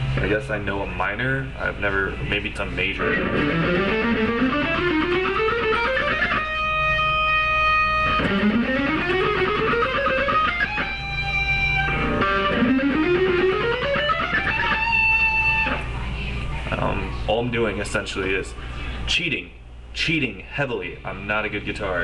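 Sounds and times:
electric guitar scale runs: 0:03.0 - 0:15.8.

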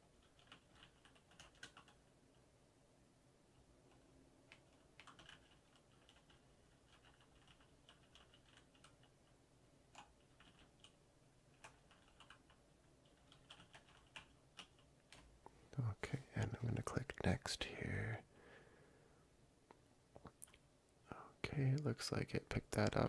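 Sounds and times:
faint keyboard typing: 0:00.0 - 0:02.5, 0:03.5 - 0:15.6, 0:16.2 - 0:17.4, 0:20.2 - 0:20.7.

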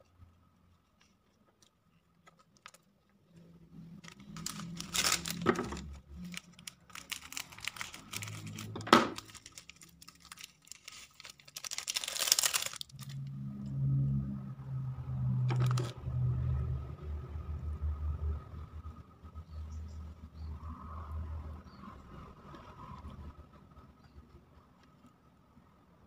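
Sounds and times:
foil sachets crinkling: 0:03.9 - 0:13.2, 0:15.5 - 0:15.9.

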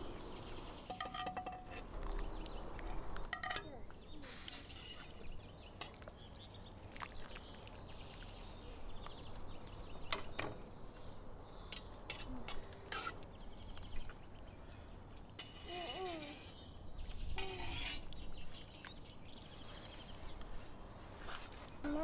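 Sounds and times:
birds chirping faintly: 0:00.0 - 0:22.0
low outdoor background: 0:00.0 - 0:22.0
metal skimmer clinking on ceramic: 0:00.9 - 0:01.8.

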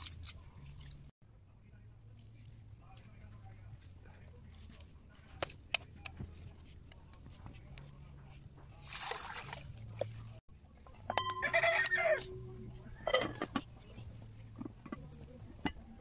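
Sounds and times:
rooster crowing: 0:11.2 - 0:12.4.

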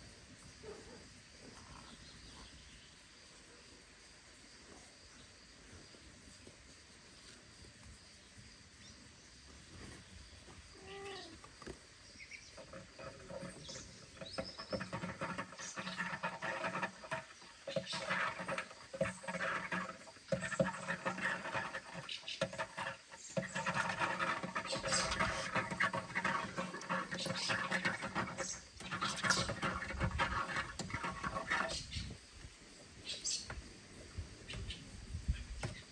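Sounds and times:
cat meowing: 0:10.8 - 0:11.3
claws scratching on wood: 0:12.6 - 0:32.0.

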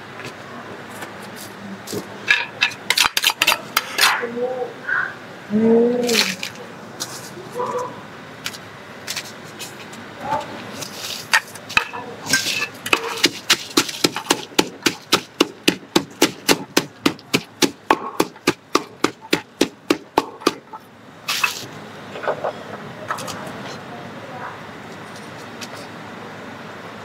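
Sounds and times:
wooden pestle pounding in mortar: 0:12.9 - 0:20.7.

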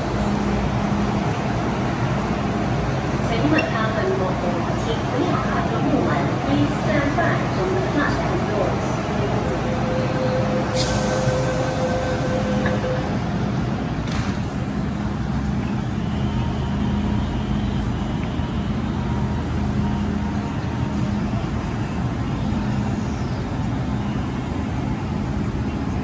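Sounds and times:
train wheels and motors rumbling: 0:00.0 - 0:26.0.

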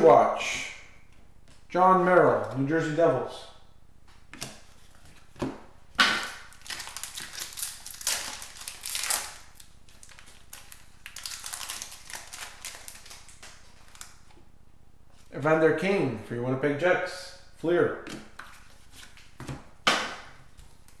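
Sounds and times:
wrapper crinkling and tearing: 0:06.2 - 0:14.2
cards being flipped: 0:18.1 - 0:21.0.

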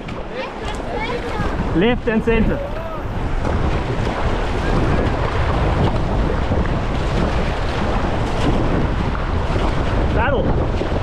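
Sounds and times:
river rapid rushing: 0:00.0 - 0:11.0
wind buffeting microphone: 0:00.0 - 0:11.0.

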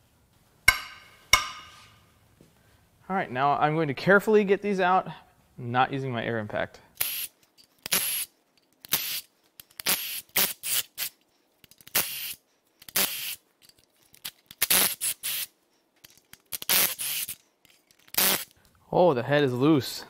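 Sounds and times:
power tool trigger bursts: 0:11.9 - 0:13.4, 0:16.5 - 0:17.4, 0:18.1 - 0:18.5.

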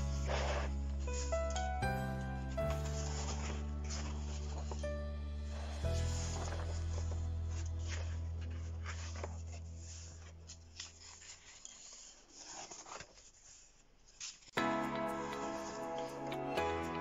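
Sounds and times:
paper pages rustling: 0:00.0 - 0:01.7, 0:02.4 - 0:05.0, 0:05.7 - 0:17.0
background music held note: 0:00.0 - 0:09.5, 0:14.6 - 0:17.0.

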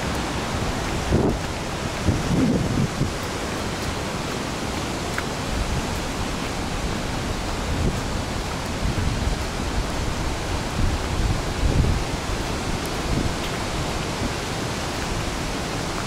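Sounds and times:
steady rushing hiss: 0:00.0 - 0:16.0
wind buffeting microphone: 0:00.0 - 0:16.0.

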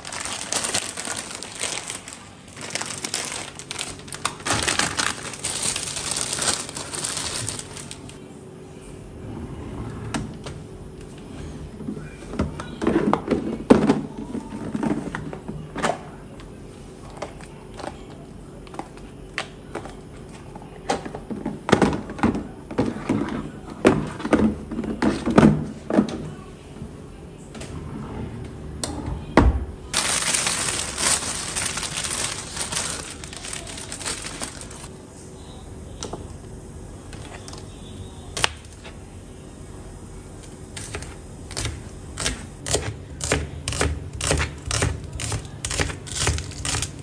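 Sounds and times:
plastic bag crinkling: 0:00.0 - 0:08.2, 0:29.9 - 0:34.9.

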